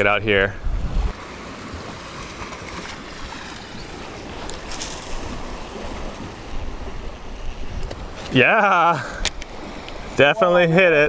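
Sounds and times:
wind on microphone: 0.0s - 1.2s, 4.2s - 8.3s
waves washing on rocky shore: 1.1s - 11.0s.

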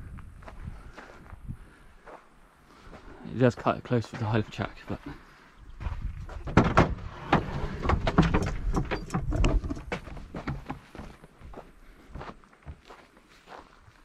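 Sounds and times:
wind buffeting microphone: 0.0s - 1.8s, 5.6s - 9.9s
knocks and rattles: 6.3s - 11.0s.

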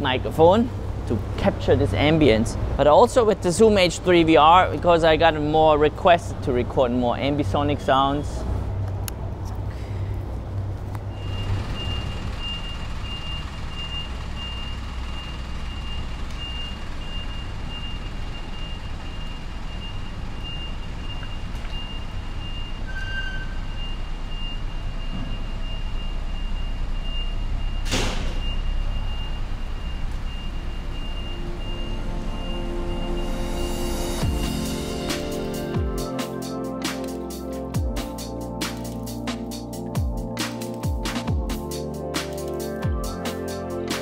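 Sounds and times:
air-conditioning units rumbling: 0.0s - 44.0s
traffic rumble: 0.0s - 44.0s
reversing alarm beeping: 11.1s - 35.7s.

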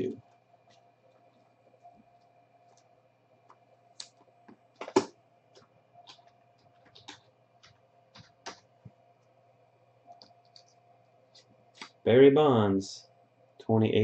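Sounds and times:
plastic sleeve clicks and rustles: 4.0s - 8.7s.

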